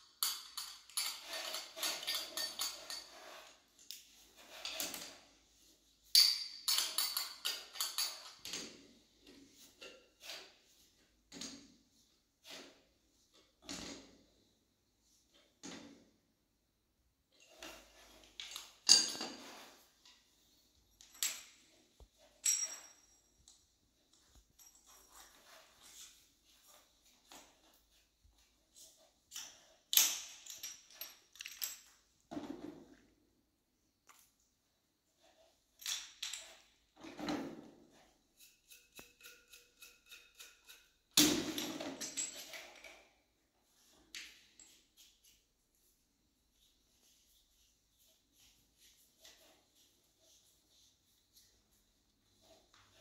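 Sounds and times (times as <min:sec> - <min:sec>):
metal hose fittings clattering: 0:00.1 - 0:10.4, 0:17.4 - 0:32.2, 0:35.3 - 0:43.2.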